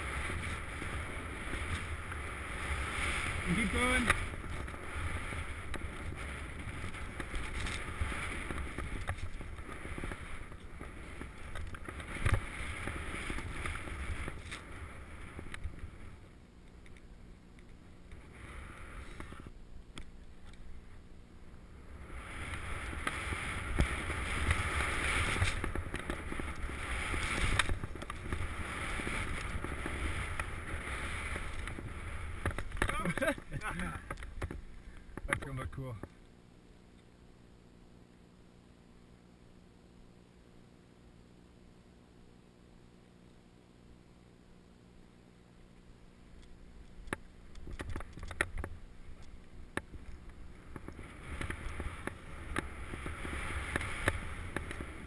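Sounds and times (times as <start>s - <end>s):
skis hissing through snow: 0.0s - 16.2s, 21.9s - 34.0s, 51.0s - 55.0s
wind buffeting a camera: 0.0s - 16.2s, 21.8s - 35.3s, 47.5s - 55.0s.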